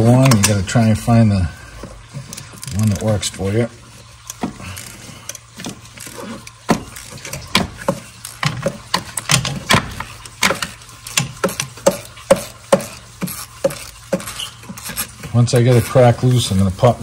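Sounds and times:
ratchet clicking and clanking: 0:04.2 - 0:16.0.

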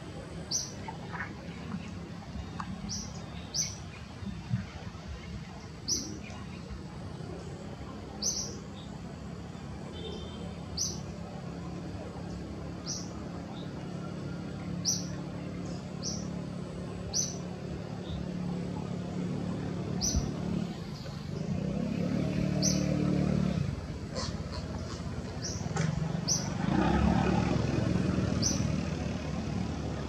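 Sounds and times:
bird calling: 0:24.1 - 0:26.6.

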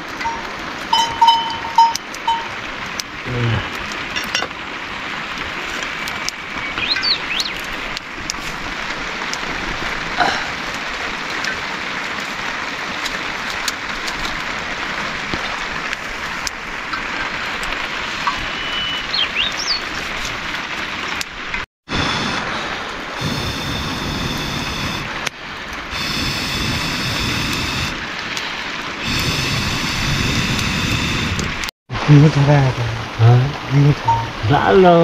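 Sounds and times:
steady rain: 0:00.0 - 0:35.0
bird chirping: 0:06.6 - 0:07.6, 0:18.5 - 0:19.9.

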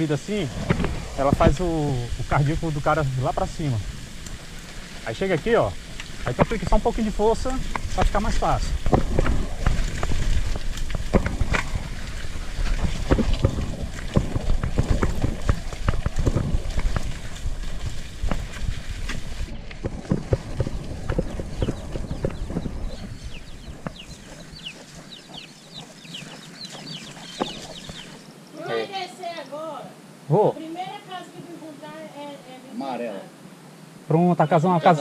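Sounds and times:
wind on microphone: 0:00.0 - 0:28.2
bike rattling and knocking: 0:06.0 - 0:25.2
bird chirps: 0:20.5 - 0:28.6.

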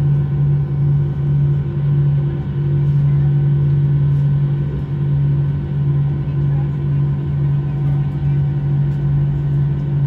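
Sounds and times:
jet engines droning at idle: 0:00.0 - 0:10.0.

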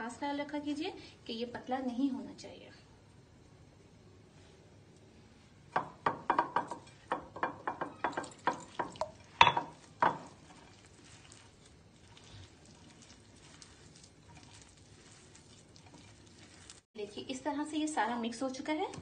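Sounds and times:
fingers knocking on glass bowl: 0:05.8 - 0:10.4.

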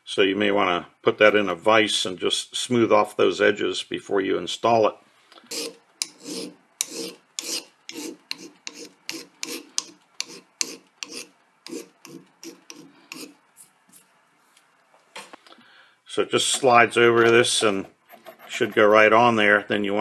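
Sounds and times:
hand file rasping on metal: 0:05.5 - 0:13.4, 0:17.6 - 0:19.0.

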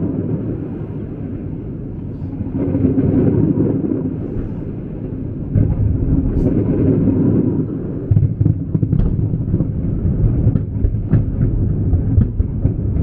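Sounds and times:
fireworks exploding: 0:02.3 - 0:13.0.

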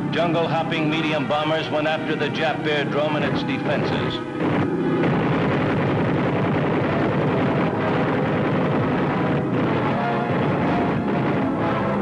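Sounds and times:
aircraft engines: 0:00.0 - 0:12.0
explosions: 0:03.9 - 0:11.5.

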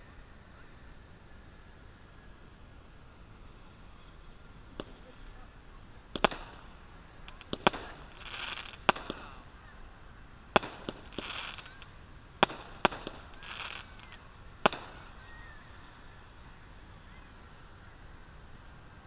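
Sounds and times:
firework crackle: 0:02.6 - 0:17.1
firework bangs: 0:06.1 - 0:09.5, 0:10.5 - 0:15.4.

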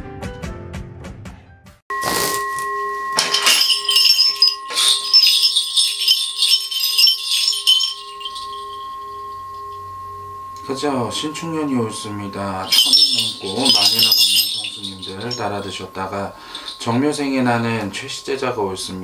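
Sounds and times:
metal bowl bell ringing: 0:01.9 - 0:19.0
bell rattle jingling: 0:03.2 - 0:09.9, 0:12.5 - 0:18.2.

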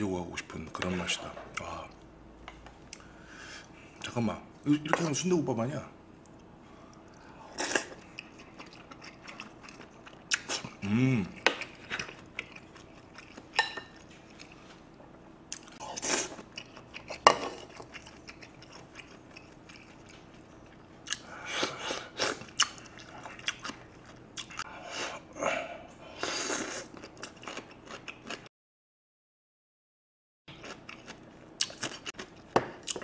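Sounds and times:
person chewing food: 0:06.3 - 0:14.8, 0:15.5 - 0:25.2, 0:26.2 - 0:28.5, 0:30.5 - 0:33.0
person humming: 0:10.8 - 0:11.4.

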